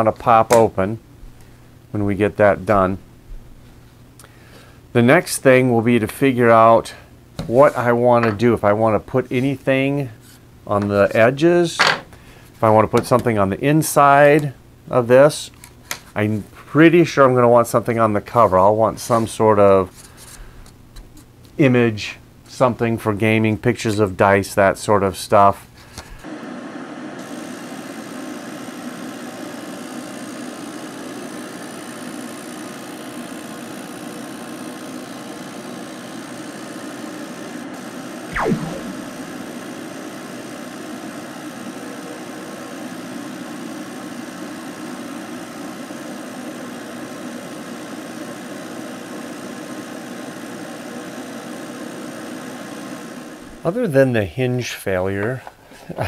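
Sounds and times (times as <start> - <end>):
laser engraver humming: 26.3 - 53.6
downward sweeping sound: 38.3 - 39.6.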